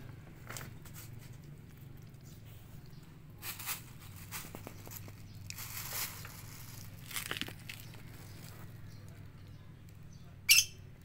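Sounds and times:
plastic bag crinkling: 0:03.4 - 0:08.7.

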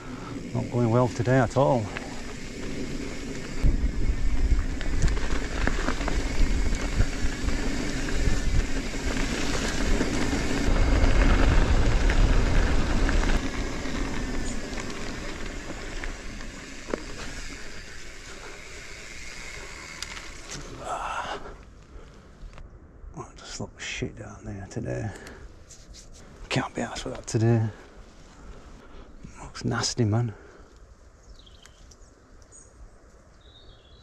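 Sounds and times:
bike tyres rolling over mud: 0:00.0 - 0:22.6
clicks and rattles of bike: 0:00.1 - 0:20.9
low rumble: 0:01.9 - 0:17.2.

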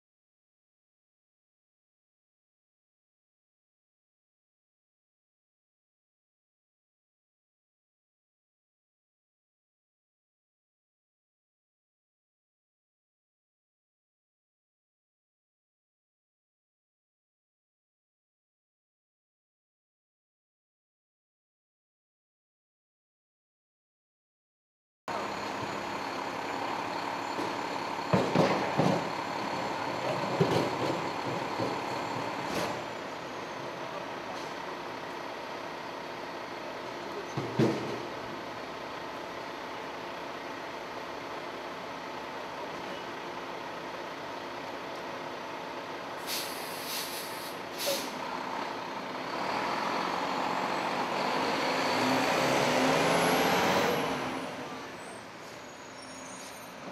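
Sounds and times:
diesel engine idling: 0:25.1 - 0:52.6
air brakes hissing: 0:46.2 - 0:48.2, 0:55.0 - 0:56.9.

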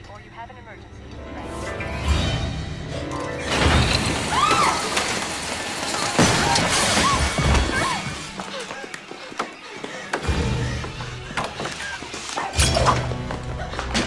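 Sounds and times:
tense film score: 0:00.0 - 0:14.0.

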